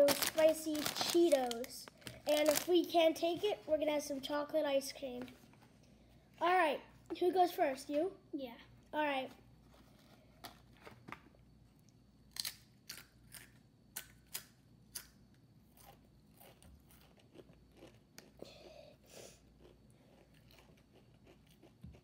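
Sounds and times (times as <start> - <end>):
tortilla chip crunching: 12.3 - 15.1, 15.7 - 18.4, 19.6 - 22.0.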